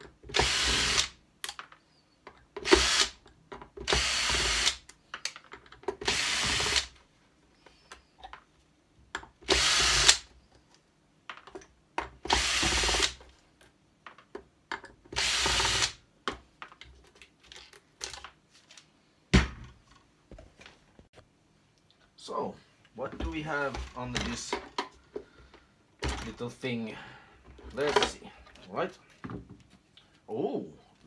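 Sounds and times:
cordless drill bursts: 0.3s - 1.2s, 2.6s - 3.2s, 3.9s - 4.8s, 6.0s - 6.9s, 9.5s - 10.3s, 12.3s - 13.2s, 15.2s - 16.0s.

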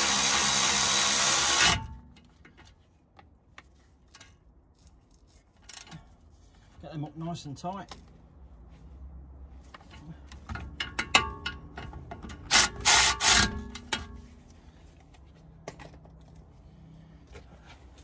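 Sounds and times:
electric ratchet running: 0.0s - 1.8s, 12.5s - 13.5s
metal clicks and knocks: 10.4s - 12.8s.

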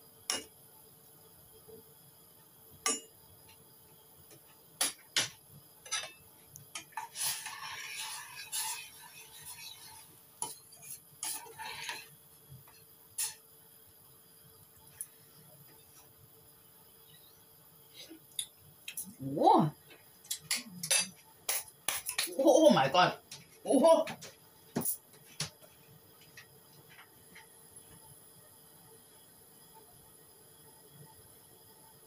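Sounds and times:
stirring thick sauce: 6.9s - 12.1s.

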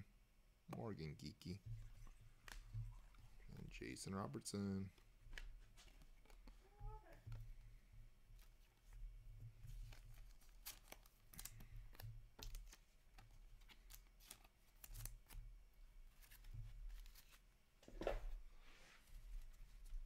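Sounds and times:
cards rustling: 1.9s - 7.3s, 8.4s - 15.4s, 16.1s - 18.2s.

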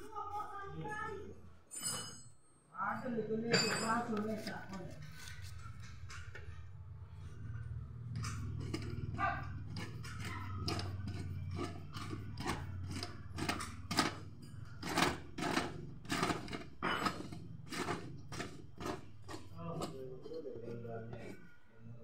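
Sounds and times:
metal clinks and knocks: 1.7s - 6.6s, 7.4s - 20.0s.

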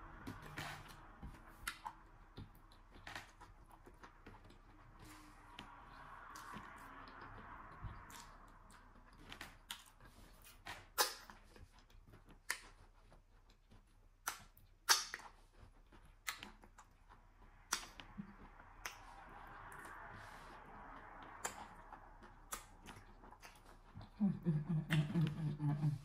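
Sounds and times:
wet lip smacks: 14.2s - 15.4s.

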